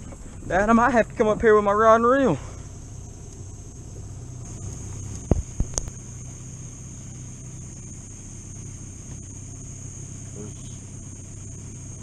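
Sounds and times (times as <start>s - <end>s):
crickets trilling: 0.0s - 12.0s
low even rumble: 0.0s - 12.0s.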